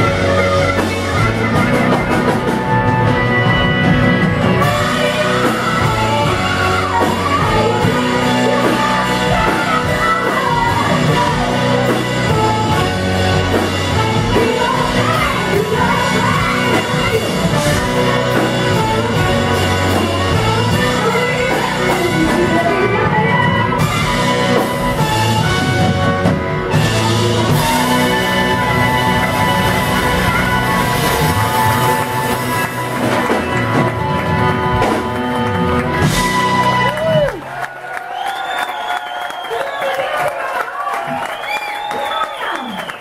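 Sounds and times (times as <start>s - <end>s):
woman singing: 0.0s - 3.6s, 4.4s - 26.0s
live rock band playing: 0.0s - 43.0s.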